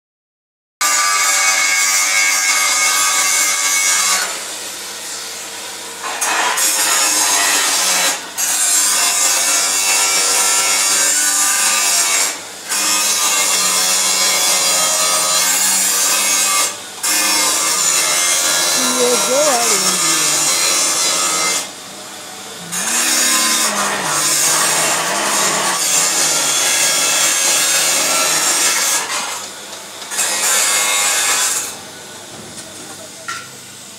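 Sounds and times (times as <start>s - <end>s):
metal being cut rasping: 6.0s - 29.4s.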